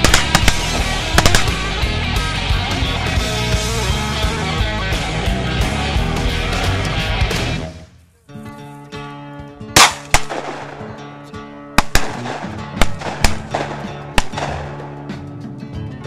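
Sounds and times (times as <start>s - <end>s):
shotgun shots: 0.0s - 1.9s, 9.8s - 10.9s, 11.8s - 14.9s
background music: 0.0s - 16.0s.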